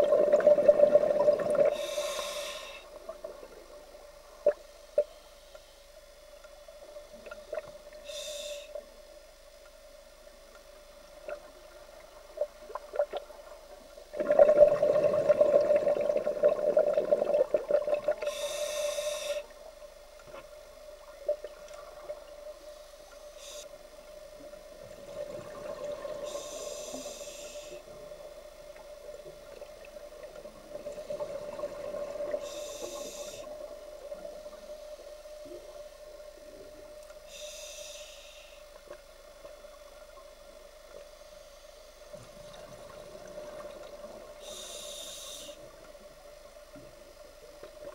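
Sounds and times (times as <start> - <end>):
steady hum: 0.0 - 47.9
regulator hissing inhalations: 1.7 - 3.0, 8.0 - 8.8, 18.2 - 19.5, 23.3 - 23.8, 26.2 - 28.0, 32.4 - 33.6, 37.2 - 38.7, 44.4 - 45.7
exhaled bubbles rushing: 14.2 - 18.2.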